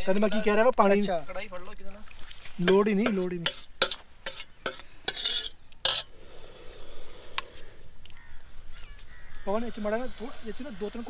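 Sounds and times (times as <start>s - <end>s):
metal ladle scraping a bowl: 2.7s - 6.2s.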